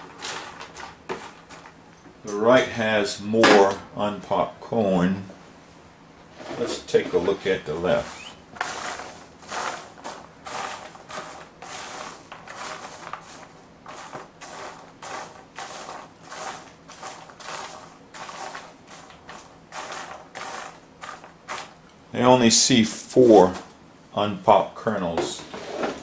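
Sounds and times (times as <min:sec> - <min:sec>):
popcorn rustling and crunching: 0:00.0 - 0:01.8, 0:06.8 - 0:21.9, 0:23.1 - 0:23.7.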